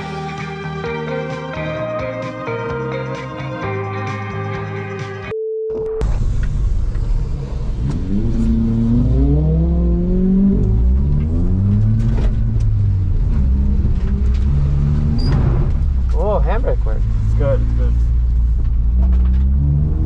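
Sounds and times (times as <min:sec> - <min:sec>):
low engine rumble: 0:06.0 - 0:20.0
car engine revving hard: 0:07.1 - 0:16.0, 0:18.8 - 0:20.0.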